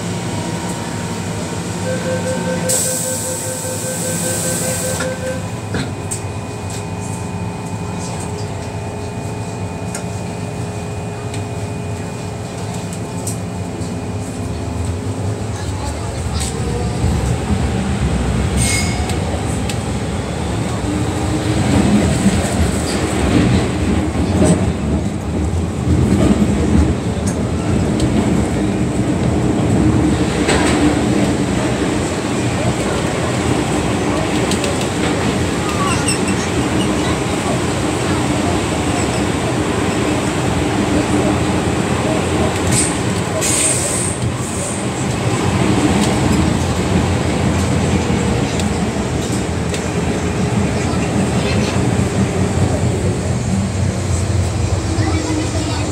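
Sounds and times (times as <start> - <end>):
high-pitched train whine: 0.0 - 23.6
train wheels rumbling on rail: 0.0 - 55.9.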